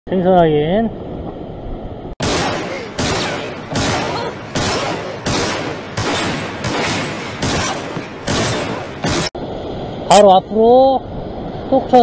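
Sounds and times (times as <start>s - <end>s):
loud crashing hits: 2.2s - 9.4s.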